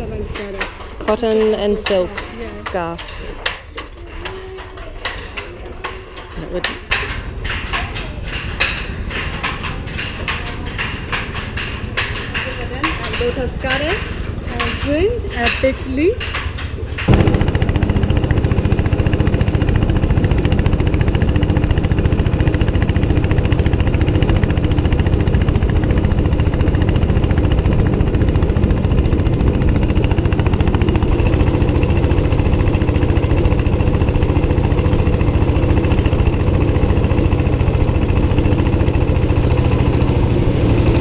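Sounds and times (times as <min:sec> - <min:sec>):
boat engine running: 0:17.0 - 0:41.0.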